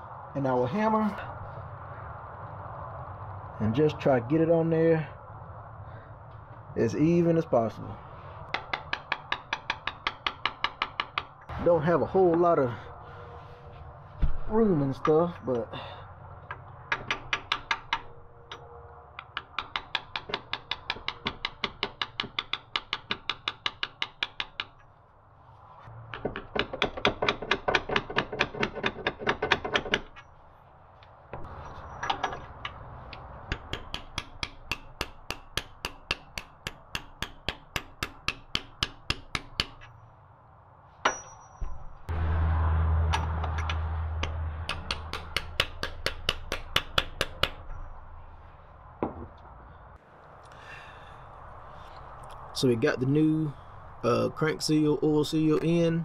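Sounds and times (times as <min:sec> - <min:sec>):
low rumble: 0:41.6 - 0:45.1.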